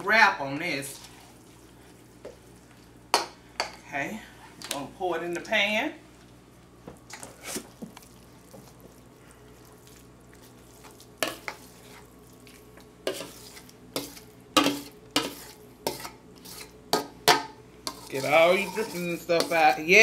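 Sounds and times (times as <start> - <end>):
metal spoon scraping a bowl: 13.1 - 16.8, 17.9 - 20.0.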